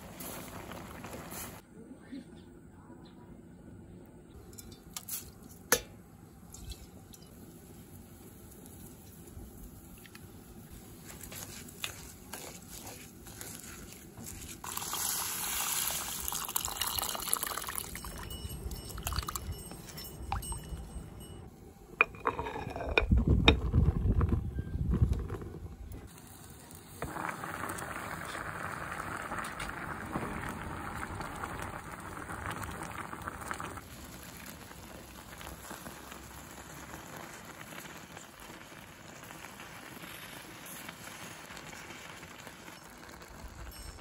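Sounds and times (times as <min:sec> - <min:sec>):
wooden spoon stirring rice: 0:10.7 - 0:15.0
water pouring: 0:12.8 - 0:20.8, 0:27.0 - 0:44.0.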